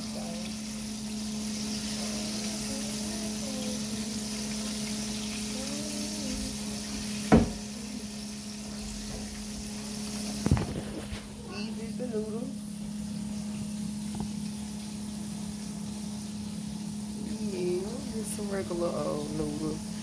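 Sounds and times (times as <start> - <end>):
steady hum: 0.0 - 20.0
steaming pot hissing: 0.0 - 20.0
sharp knocks: 7.3 - 7.6.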